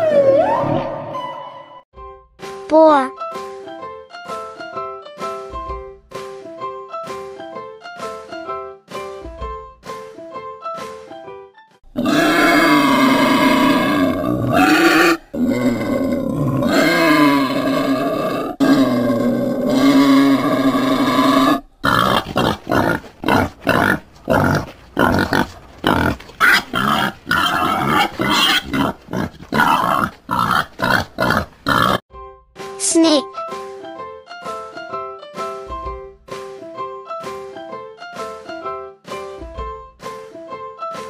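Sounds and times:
warthog long pitched calls: 12.0s - 32.0s.

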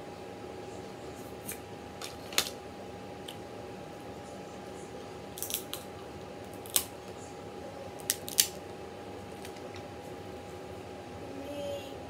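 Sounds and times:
faint steady hum: 0.0s - 12.0s
crab shell cracking: 5.4s - 5.8s, 6.5s - 6.9s, 8.0s - 8.6s.

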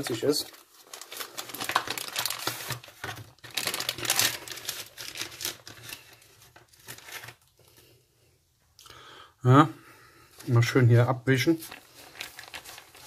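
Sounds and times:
plastic and foil packaging crinkling: 0.0s - 7.8s, 11.3s - 13.0s.

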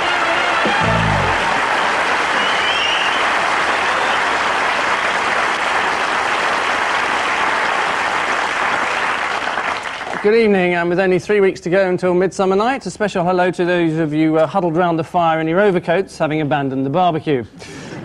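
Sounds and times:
audience applauding: 0.0s - 10.2s
theme music: 0.6s - 1.9s.

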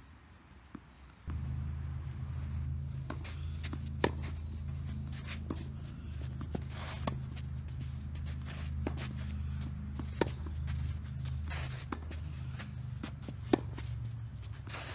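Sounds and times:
steady low hum: 1.3s - 14.9s
footsteps scuffing on clay: 2.3s - 14.9s
racquet hitting tennis ball: 3.0s - 4.5s
shoe scrape: 3.0s - 14.9s.

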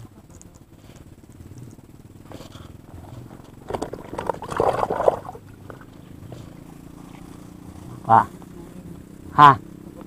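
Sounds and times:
steady low hum: 0.0s - 9.3s.

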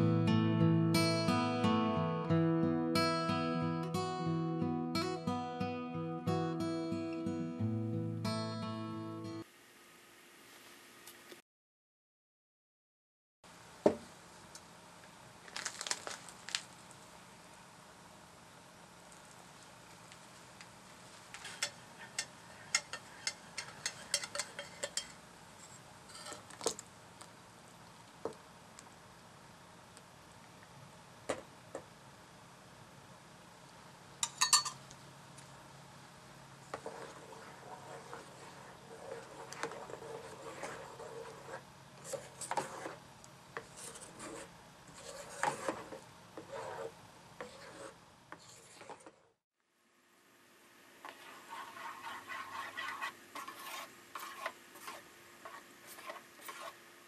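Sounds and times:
wooden spoon scraping saucepan: 21.4s - 26.5s, 36.7s - 43.0s, 43.6s - 49.4s, 51.0s - 56.8s
spoon clinking on pitcher: 34.2s - 34.8s.

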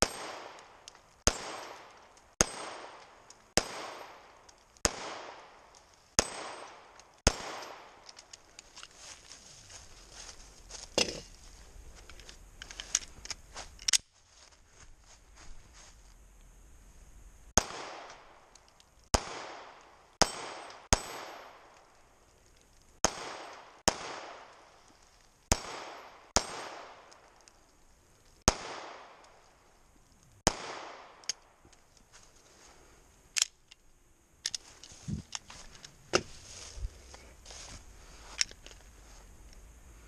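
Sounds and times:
pistol shots with echo: 0.0s - 0.7s, 1.3s - 5.6s, 6.2s - 8.0s, 17.6s - 18.3s, 19.1s - 21.6s, 23.0s - 24.6s, 25.5s - 27.1s, 28.5s - 29.2s, 30.4s - 31.2s
metallic handling clicks: 8.0s - 9.0s, 12.0s - 14.1s, 33.3s - 33.8s, 34.4s - 35.9s.

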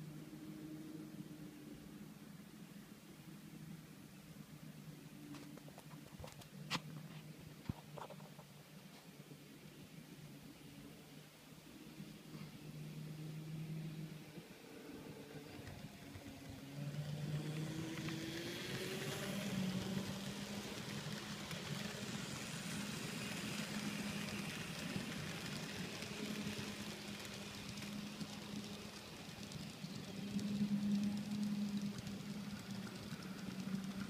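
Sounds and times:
model train hum: 9.1s - 34.0s
small wheels rattling on track: 15.2s - 34.0s.

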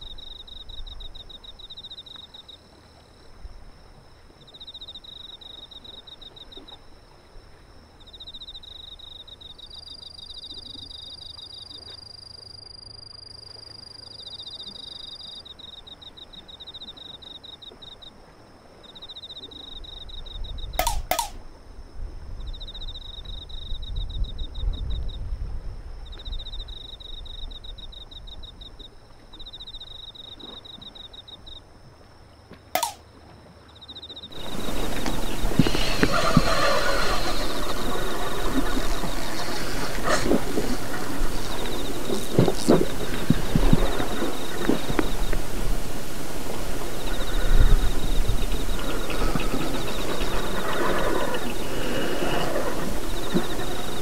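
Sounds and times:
insects chirping: 0.0s - 54.0s
steady high whine: 34.3s - 54.0s.

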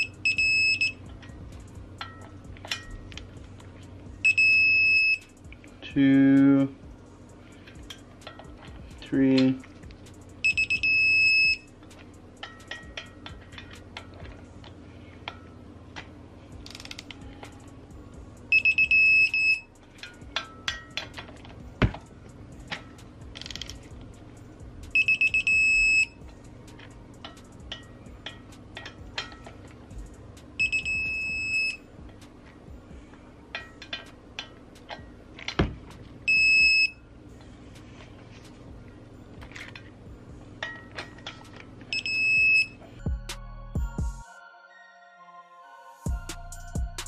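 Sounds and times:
torque wrench beeping: 0.0s - 1.1s, 4.2s - 5.3s, 10.4s - 11.7s, 16.6s - 17.2s, 18.5s - 19.7s, 24.9s - 26.3s, 30.6s - 31.9s, 36.3s - 37.0s, 41.9s - 42.8s
wrench and socket clacks: 16.6s - 17.6s, 22.7s - 23.9s
ratchet clicks: 16.6s - 17.7s, 20.0s - 24.1s.

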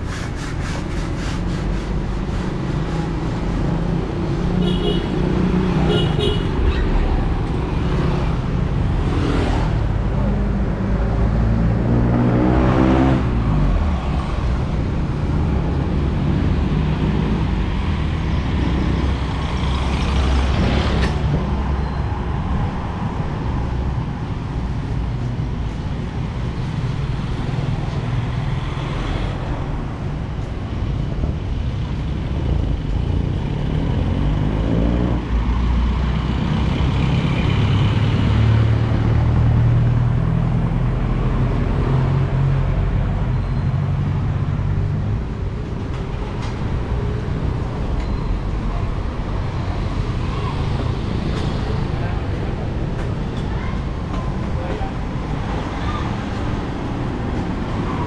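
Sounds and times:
cars and motorcycles passing: 0.0s - 58.0s.

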